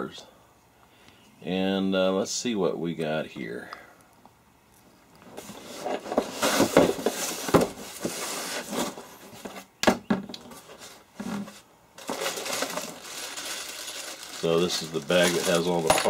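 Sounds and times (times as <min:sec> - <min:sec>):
cardboard scraping and rustling: 0:05.2 - 0:09.7, 0:10.4 - 0:15.9.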